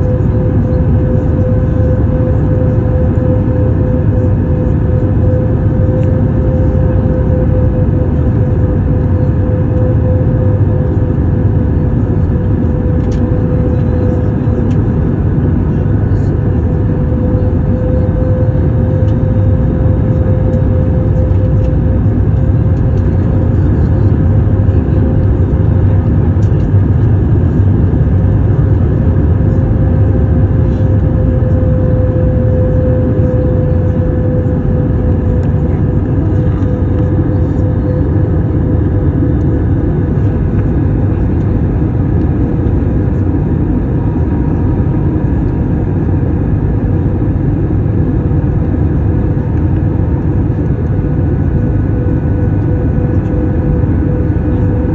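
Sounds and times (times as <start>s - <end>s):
aircraft engines rumbling: 0.0s - 54.9s
droning tone: 0.0s - 54.9s.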